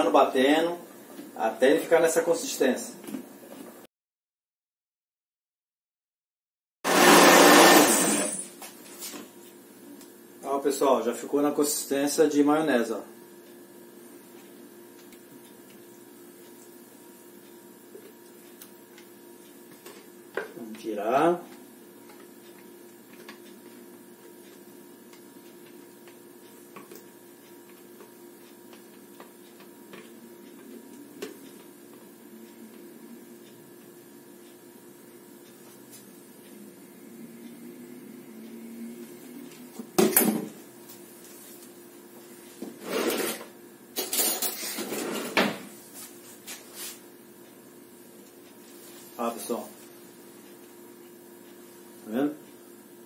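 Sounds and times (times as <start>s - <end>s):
faint steady hum: 8.3s - 44.6s.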